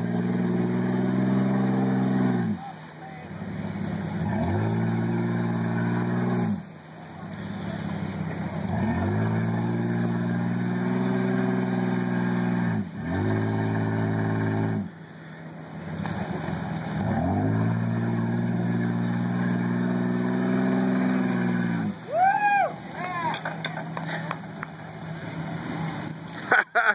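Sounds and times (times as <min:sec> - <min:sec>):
engine revving hard: 0:00.0 - 0:02.6, 0:03.8 - 0:06.6, 0:08.5 - 0:14.9, 0:16.0 - 0:22.0.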